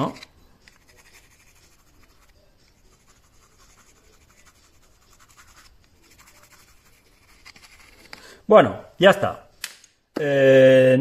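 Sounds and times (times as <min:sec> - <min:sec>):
pencil scratching on card: 0:00.0 - 0:08.2.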